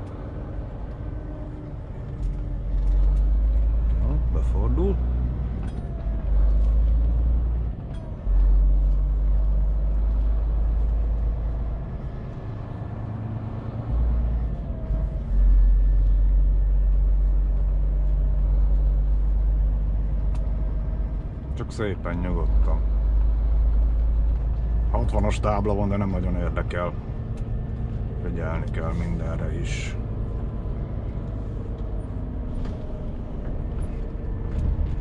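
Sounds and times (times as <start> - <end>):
truck diesel engine rumbling: 0.0 - 35.0.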